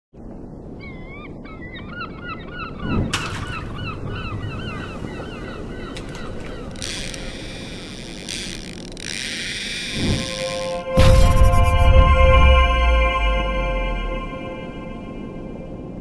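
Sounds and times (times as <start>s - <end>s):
gulls calling: 0.8s - 11.1s
steady low rush: 10.0s - 16.0s.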